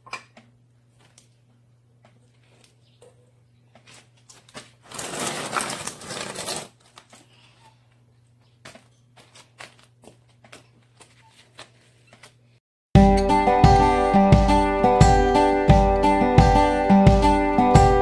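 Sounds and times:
gloved hands rustling soil: 3.9s - 7.1s.

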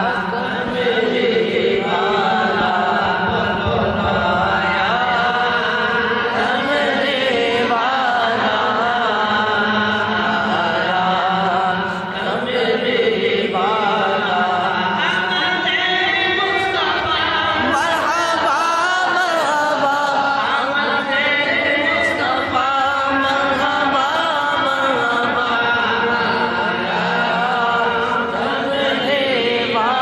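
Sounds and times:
voices chanting devotional melody: 0.0s - 30.0s.

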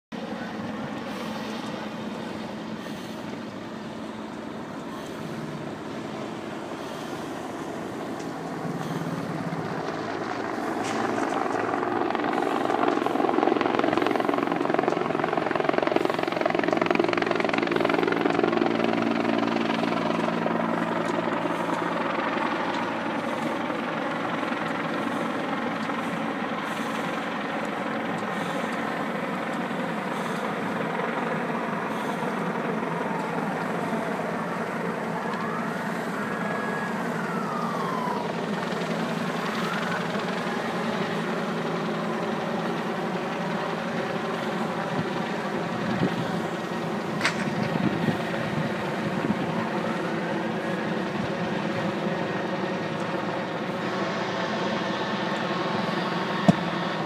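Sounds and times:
heavy engine drone: 0.1s - 57.0s.

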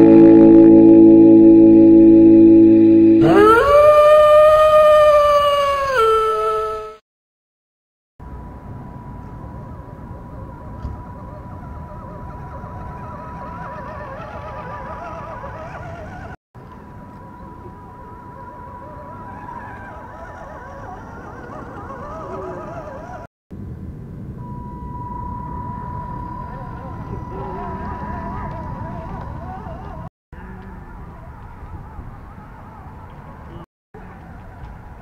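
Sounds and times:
low rumble: 0.0s - 4.2s
thin high whine: 0.0s - 4.6s, 24.4s - 29.1s.

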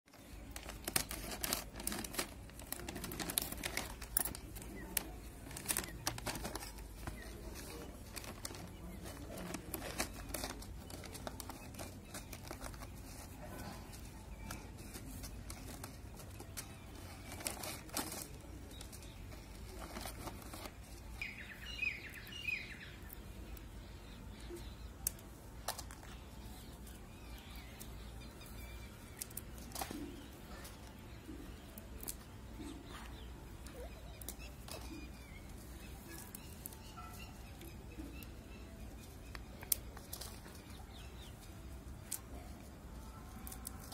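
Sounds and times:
dry chillies crackling as snapped: 0.1s - 43.9s
plastic packet crinkling: 0.2s - 21.8s
bird chirping: 3.0s - 42.4s.

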